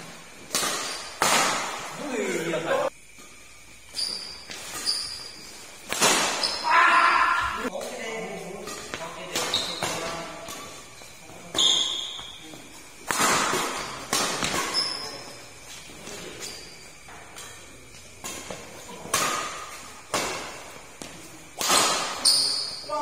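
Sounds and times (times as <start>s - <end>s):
shoes squeaking on court: 0.3s - 1.9s, 3.0s - 6.7s, 8.3s - 23.0s
racket striking shuttlecock: 0.4s - 1.9s, 3.2s - 6.7s, 13.0s - 15.0s, 18.2s - 22.7s.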